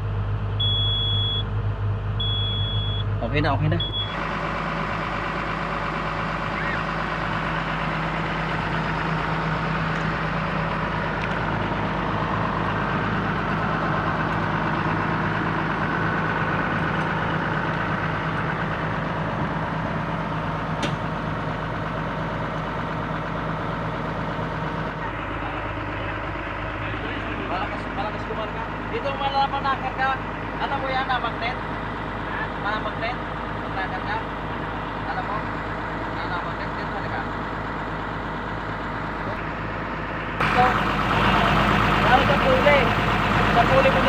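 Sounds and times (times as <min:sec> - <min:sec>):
diesel engine idling: 0:00.0 - 0:44.0.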